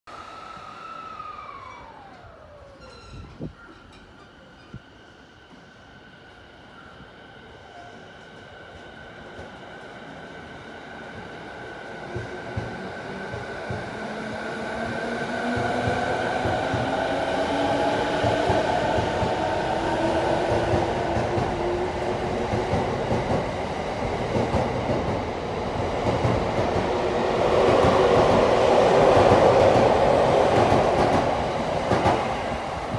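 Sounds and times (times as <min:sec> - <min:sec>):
electric train motors whining: 0:00.1 - 0:04.8.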